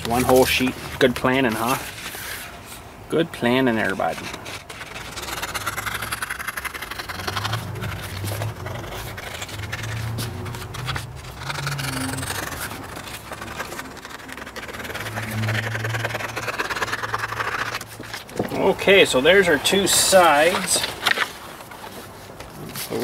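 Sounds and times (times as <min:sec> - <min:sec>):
paper sheet rustling: 0:00.0 - 0:02.8, 0:03.7 - 0:23.0
scissors snipping paper: 0:04.0 - 0:18.4.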